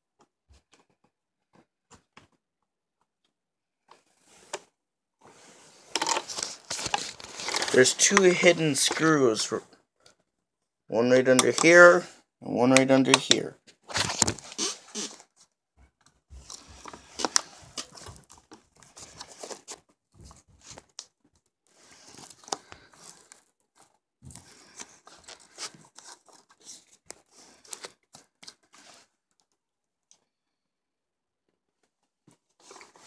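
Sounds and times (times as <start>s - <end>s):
rustling and scraping: 3.9s - 10.2s, 13.7s - 21.0s, 21.7s - 29.2s, 32.3s - 33.0s
sharp plastic clicks and knocks: 11.3s - 11.8s.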